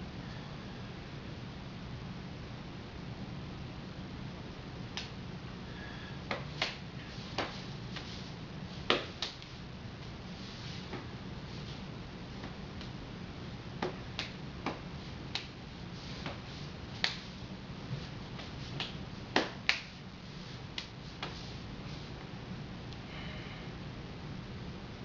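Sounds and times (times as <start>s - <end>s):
low steady hum: 0.0s - 25.0s
hands slapping hands and forearms: 4.9s - 5.2s, 6.3s - 8.2s, 8.8s - 10.1s, 13.8s - 17.4s, 18.3s - 20.0s, 20.7s - 21.5s.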